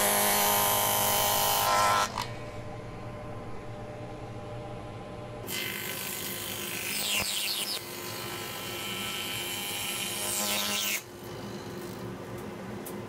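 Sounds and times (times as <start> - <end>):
table saw motor humming: 0.0 - 2.4.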